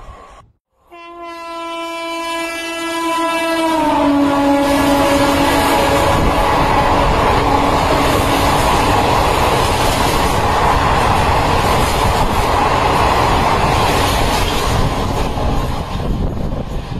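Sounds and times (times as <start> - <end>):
train wheels clattering on rail: 5.1 - 16.9.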